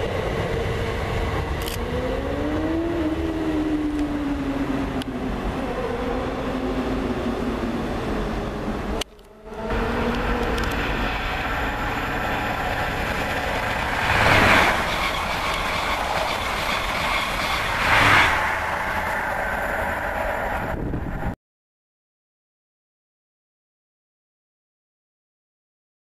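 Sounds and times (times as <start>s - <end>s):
train wheels rumbling on rail: 0.0s - 21.4s.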